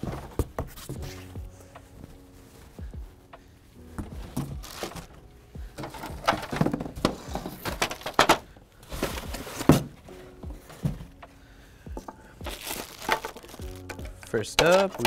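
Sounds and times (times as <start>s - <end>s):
cardboard scraping and bumping: 4.0s - 5.2s, 5.8s - 11.2s
plastic crinkling: 4.6s - 5.2s, 12.4s - 15.0s.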